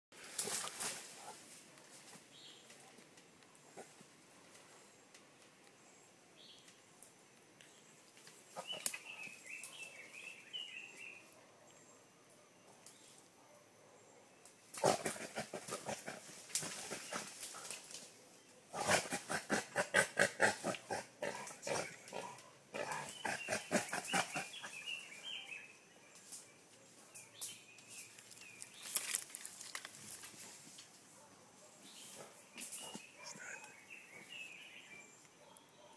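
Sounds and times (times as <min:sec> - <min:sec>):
wild boar grunting: 0:14.8 - 0:17.4, 0:18.7 - 0:24.9.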